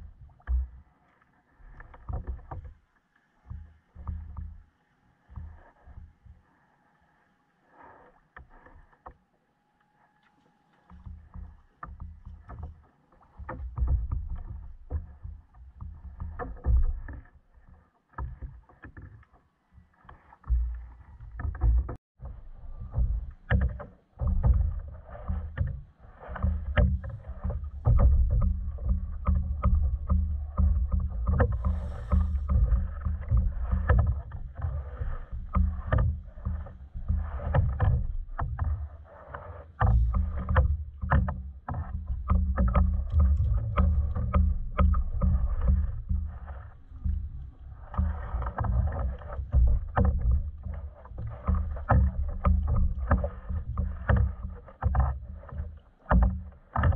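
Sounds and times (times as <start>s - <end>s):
water slapping kayak hull: 10.6s - 56.9s
low rumble: 26.4s - 38.9s, 41.8s - 54.4s.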